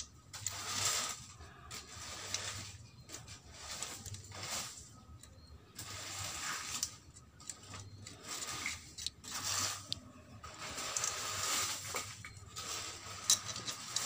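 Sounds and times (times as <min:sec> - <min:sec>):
rustling handling noise: 0:00.0 - 0:14.0
small metallic clicks and scraping: 0:00.0 - 0:14.0.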